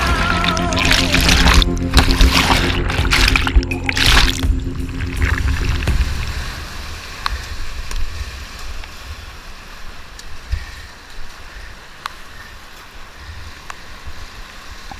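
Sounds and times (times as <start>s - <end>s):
whitewater rapids rushing: 0.0s - 7.9s
wind on microphone: 0.0s - 10.9s
low rumble of water: 0.0s - 11.4s.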